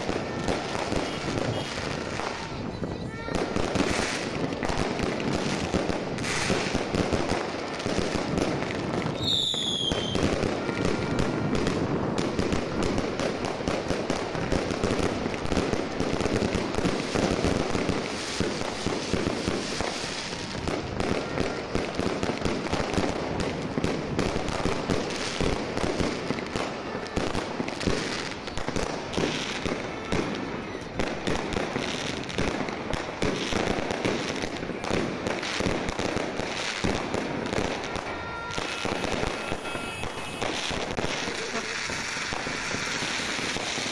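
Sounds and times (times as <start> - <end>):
fireworks crackling and popping: 0.0 - 43.9
falling firework whistle: 0.8 - 1.9, 9.1 - 11.4, 37.6 - 43.9.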